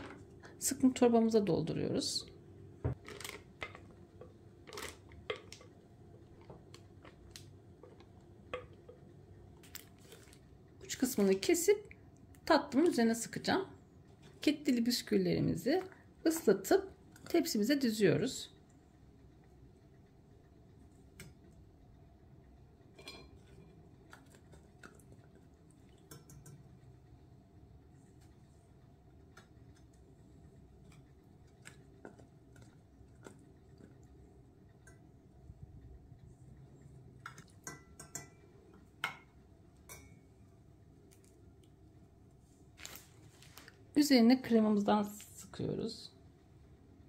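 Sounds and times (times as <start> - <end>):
soft drips: 23.3 - 27.3.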